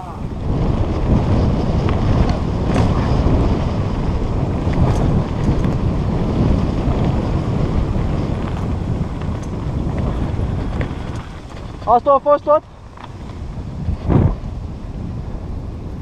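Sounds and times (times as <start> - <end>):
bike tyres rolling on dirt: 0.0 - 16.0
wind buffeting microphone: 0.0 - 16.0
bike knocks: 1.8 - 3.4.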